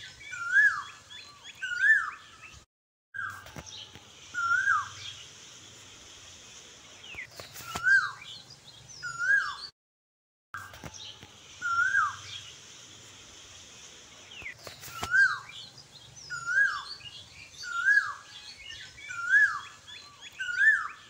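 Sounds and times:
bird whistling rising and falling call: 0.0 - 2.6, 4.4 - 5.1, 7.2 - 8.4, 9.0 - 9.7, 11.6 - 12.4, 14.4 - 15.6, 16.2 - 21.0
faint high bird chirps: 0.0 - 2.6, 3.2 - 5.9, 6.9 - 9.7, 10.6 - 13.2, 14.2 - 21.0.

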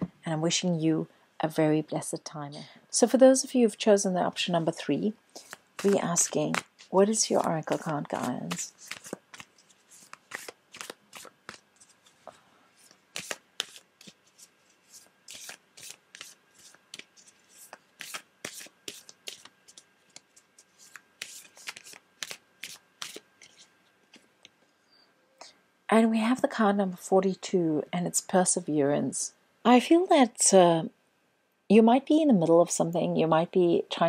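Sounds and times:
cards being shuffled: 5.3 - 12.2, 12.8 - 24.3.

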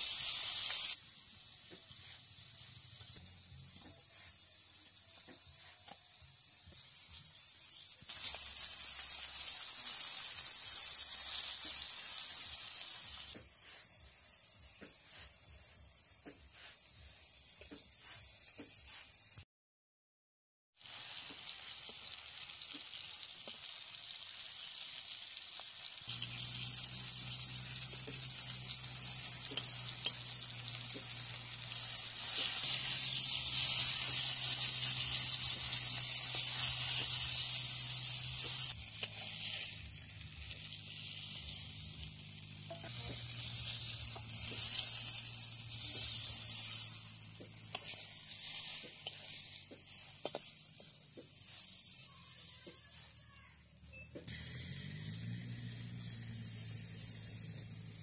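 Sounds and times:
oil sizzling: 0.0 - 19.4, 20.8 - 58.0
metal spatula scraping pan: 42.6 - 51.8.

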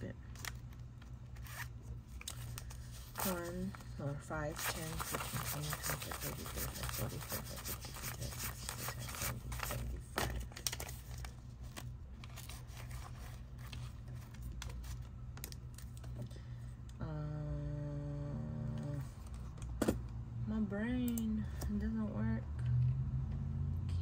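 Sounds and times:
steady low hum: 0.0 - 24.0
banknotes rustling: 0.4 - 15.3.

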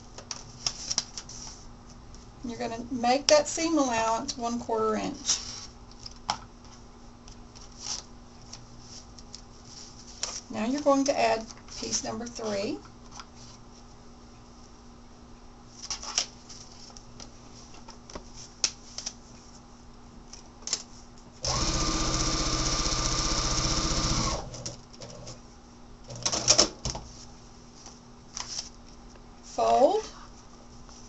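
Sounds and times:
paper and fabric rustling: 0.3 - 2.3, 6.6 - 13.9, 15.7 - 21.1, 27.0 - 31.0
sewing machine stitching: 21.4 - 24.6.

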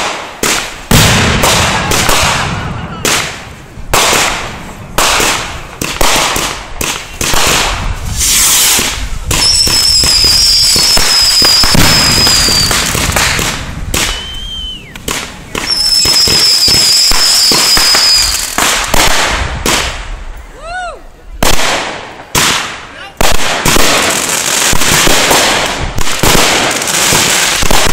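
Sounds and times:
fireworks bangs: 0.0 - 20.4, 21.4 - 27.9
dense fireworks noise: 0.0 - 27.9
high firework whistle: 1.8 - 3.4, 8.1 - 18.6.

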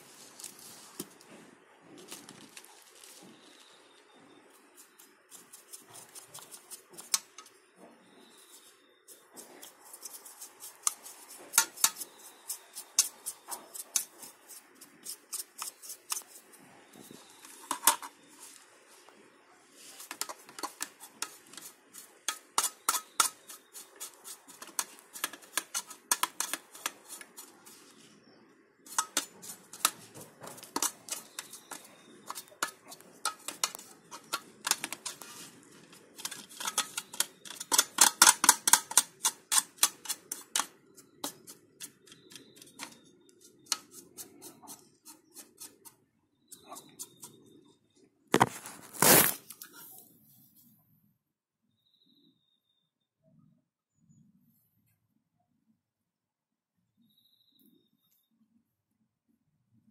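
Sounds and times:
plastic fan and steel case clicking: 28.9 - 41.4.

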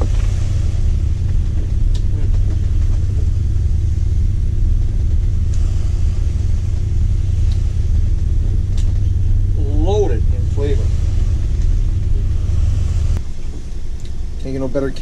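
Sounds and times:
diesel engine rumble: 0.0 - 15.0.

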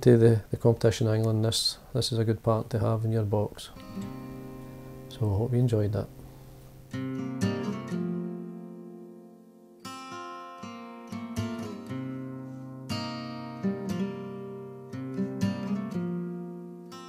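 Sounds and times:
acoustic guitar chords: 3.7 - 17.0.

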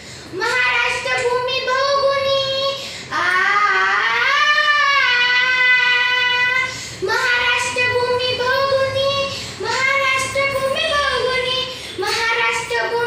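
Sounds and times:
girl singing: 0.3 - 13.0.

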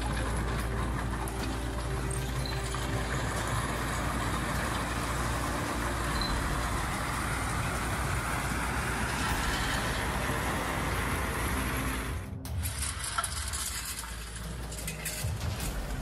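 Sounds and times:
diesel engine running: 0.0 - 16.0
soil and stones rushing down chute: 0.0 - 16.0.

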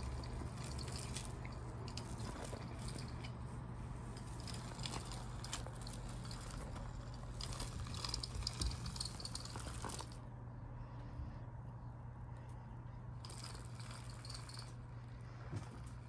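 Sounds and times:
kittens tapping and scratching: 0.0 - 10.2
steady low hum: 0.0 - 16.0.

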